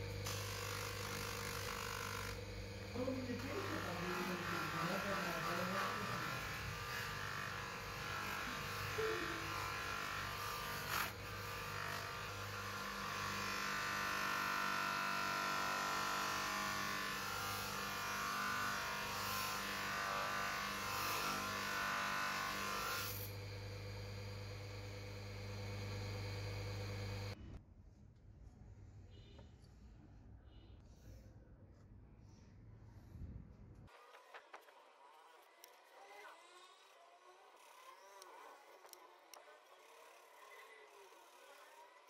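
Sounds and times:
bench grinder motor hum: 0:00.0 - 0:27.4.

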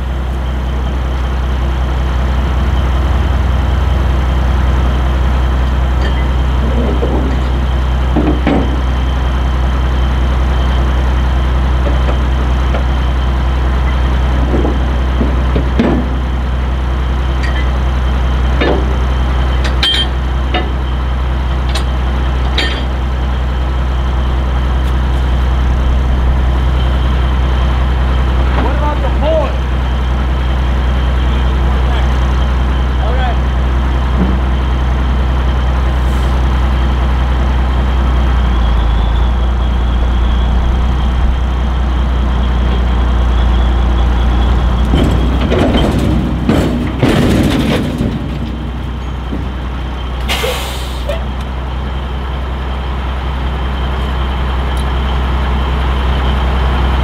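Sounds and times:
diesel truck engine idling: 0:00.0 - 0:57.0
sharp metallic clanks and clicks: 0:19.6 - 0:20.8, 0:21.7 - 0:23.0.

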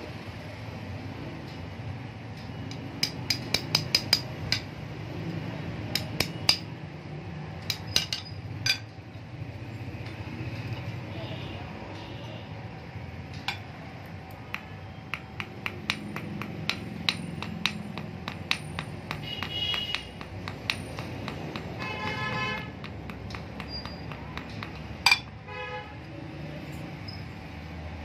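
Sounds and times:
hammer tapping metal: 0:02.6 - 0:04.8, 0:05.8 - 0:06.8, 0:07.6 - 0:09.0, 0:13.3 - 0:25.5
vehicle horn: 0:19.2 - 0:20.1, 0:21.8 - 0:22.8, 0:25.4 - 0:26.0.

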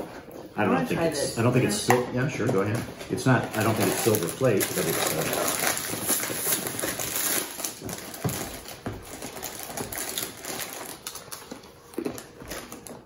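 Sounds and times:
plastic snack packet crinkling: 0:02.6 - 0:13.0.

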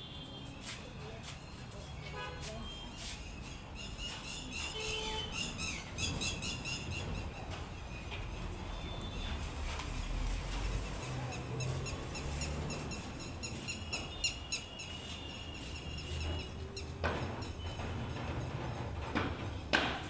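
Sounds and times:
birds chirping: 0:03.2 - 0:09.4, 0:10.9 - 0:17.9.

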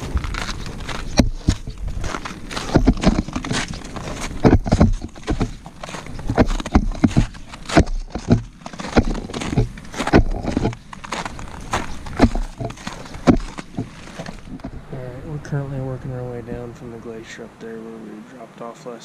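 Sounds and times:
boots crunching on ice: 0:00.0 - 0:14.8.

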